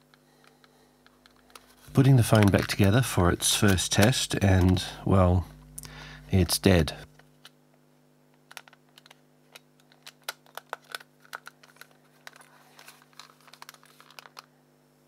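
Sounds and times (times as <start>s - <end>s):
plastic clicks and snaps: 8.4s - 12.5s.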